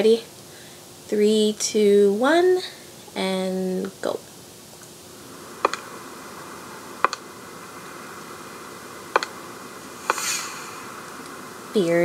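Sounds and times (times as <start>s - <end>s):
faint steady hiss: 0.0s - 12.0s
thin high tone: 5.5s - 12.0s
sharp double clicks: 7.0s - 7.2s, 9.1s - 9.3s.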